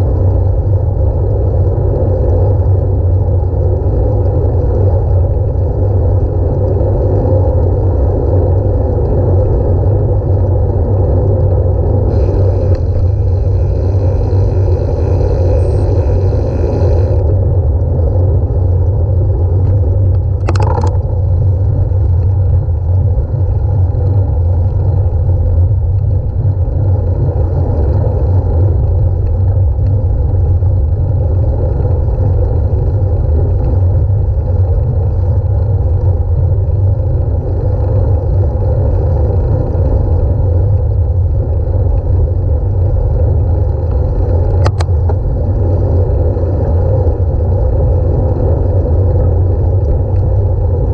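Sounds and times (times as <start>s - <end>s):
wind and road noise rumble: 0.0s - 50.9s.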